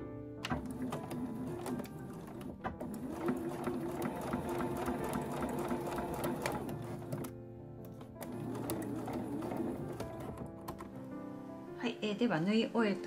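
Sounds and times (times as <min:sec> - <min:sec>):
background music: 0:00.0 - 0:13.0
sewing machine running: 0:00.5 - 0:07.3, 0:08.1 - 0:10.9.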